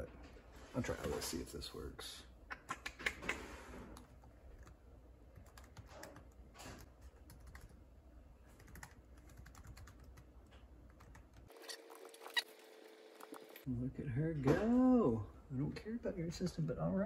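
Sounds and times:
laptop keyboard typing: 0:04.0 - 0:07.8, 0:08.5 - 0:11.5.

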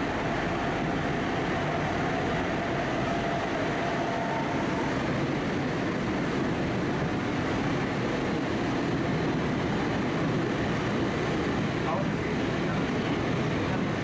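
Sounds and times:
train rumbling and rolling: 0:00.0 - 0:14.0.

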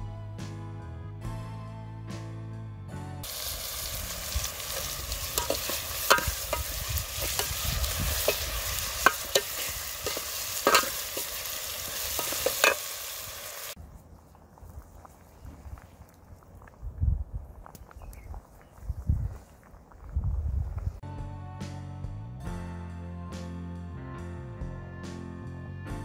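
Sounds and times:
onions sizzling in oil: 0:03.2 - 0:13.8
metal ladle scraping pot: 0:04.2 - 0:13.7.

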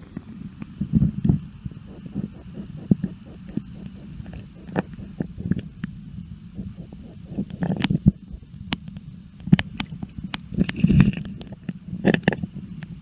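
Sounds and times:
underwater rumble of moving water: 0:00.1 - 0:12.7
sharp clicks and ticks: 0:00.6 - 0:06.0.

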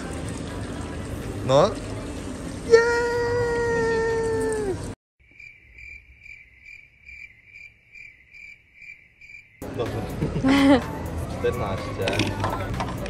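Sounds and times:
crickets chirping: 0:05.2 - 0:09.8.

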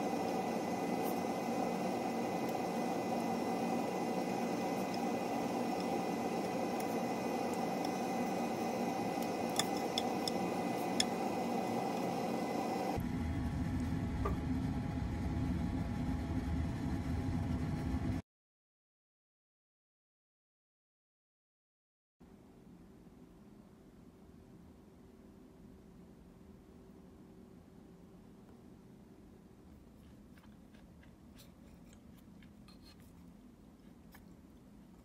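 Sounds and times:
steady mechanical whir: 0:00.0 - 0:18.2
utensil clinking against pot: 0:09.2 - 0:11.2.

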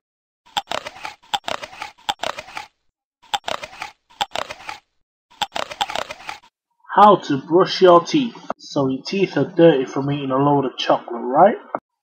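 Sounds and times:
juicy crunching of watermelon bites: 0:00.5 - 0:02.7.

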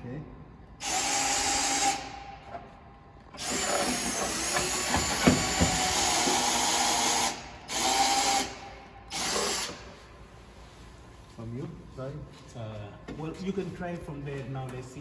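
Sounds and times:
cordless drill whining: 0:03.4 - 0:09.8.

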